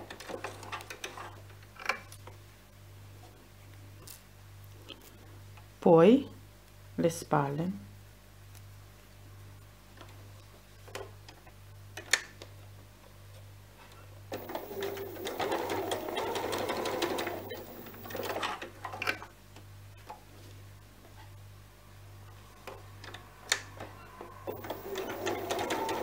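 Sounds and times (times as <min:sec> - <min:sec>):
sewing machine stitching: 0:14.3 - 0:18.6, 0:24.4 - 0:26.0.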